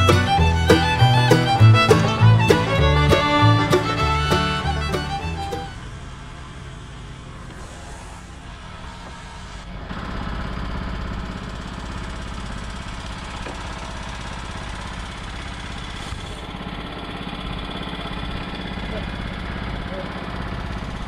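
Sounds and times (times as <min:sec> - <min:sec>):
small engine idling: 0:00.0 - 0:21.0.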